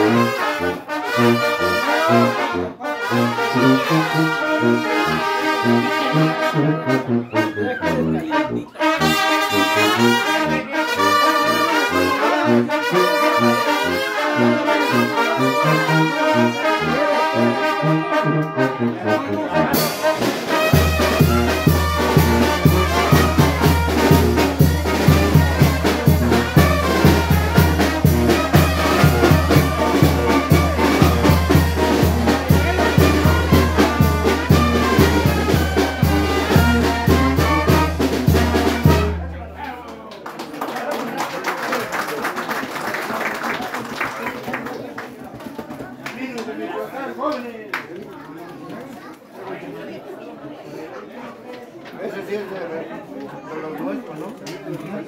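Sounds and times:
trumpets and trombones: 0:00.0 - 0:39.6
steady drum beat: 0:19.7 - 0:39.3
cymbals: 0:19.8 - 0:39.3.

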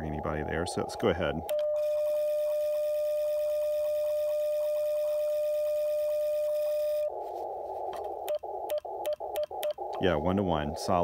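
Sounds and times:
radio band hiss: 0:00.0 - 0:01.5, 0:06.8 - 0:11.0
steady sidetone tone: 0:00.0 - 0:11.0.

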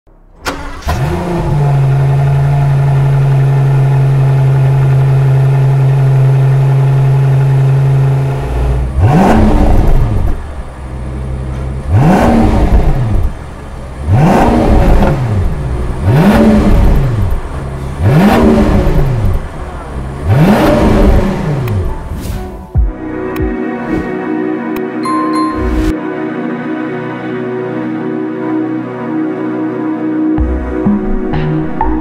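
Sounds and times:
car engine starting and revving: 0:00.3 - 0:22.5.

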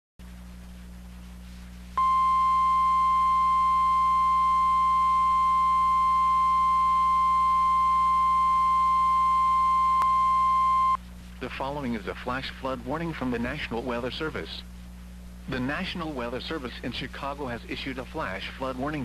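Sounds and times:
low hum: 0:00.2 - 0:16.4
high-pitched alarm tone: 0:02.0 - 0:11.0.

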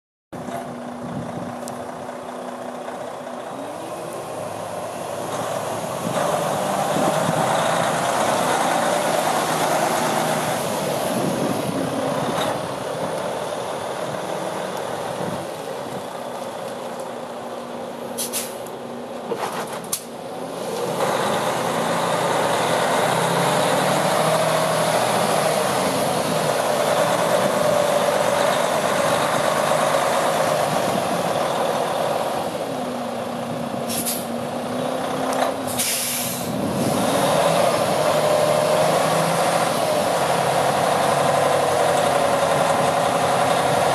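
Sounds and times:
diesel truck engine running: 0:00.4 - 0:43.9
air brake hisses: 0:18.2 - 0:18.7, 0:33.9 - 0:34.3, 0:35.7 - 0:36.6.

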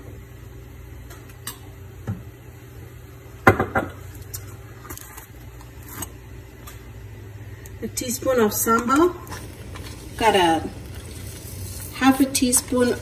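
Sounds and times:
steady low hum: 0:04.0 - 0:13.0.

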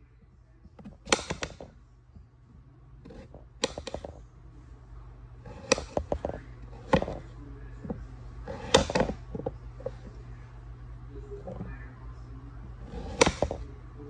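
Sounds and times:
knife cutting potatoes: 0:00.8 - 0:01.7, 0:03.0 - 0:04.2, 0:05.4 - 0:10.1, 0:12.7 - 0:13.7
blade knocking on cutting board: 0:05.5 - 0:07.2, 0:12.9 - 0:13.6.

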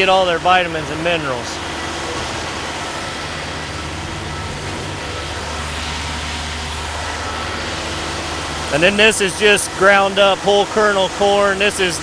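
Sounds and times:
farm engine droning: 0:00.0 - 0:12.0.

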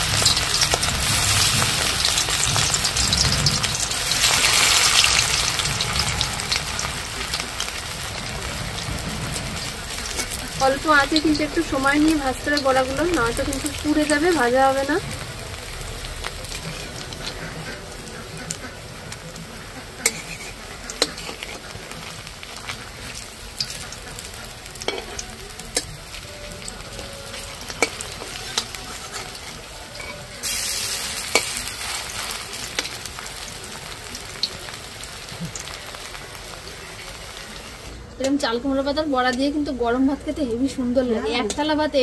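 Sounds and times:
fritters sizzling in hot oil: 0:00.0 - 0:42.0
metal spatula scraping pan: 0:16.5 - 0:18.8, 0:19.9 - 0:25.9, 0:27.3 - 0:32.9.

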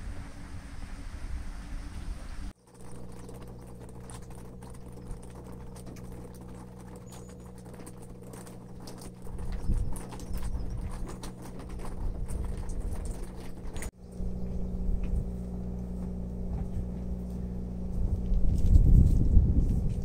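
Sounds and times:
steady mechanical hum: 0:00.0 - 0:20.0
wind rumble on microphone: 0:07.9 - 0:20.0.

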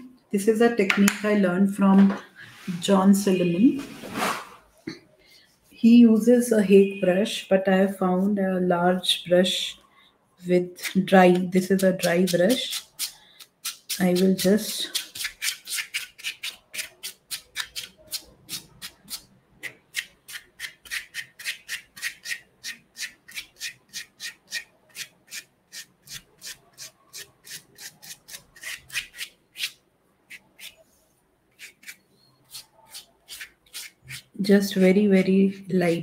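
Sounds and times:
dry brush sweeping paper: 0:20.3 - 0:35.0.

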